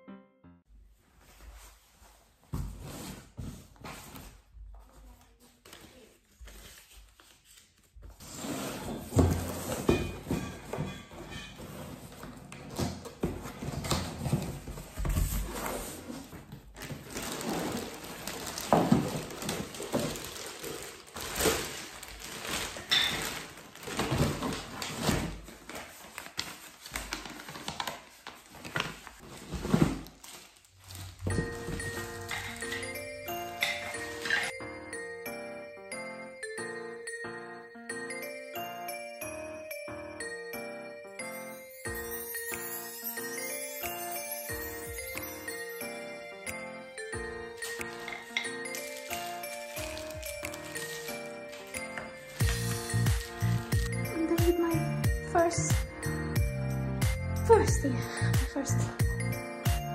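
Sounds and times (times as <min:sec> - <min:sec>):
rustling cardboard and plastic wrapping: 0:00.9 - 0:34.6, 0:41.8 - 0:46.2, 0:47.0 - 0:59.4.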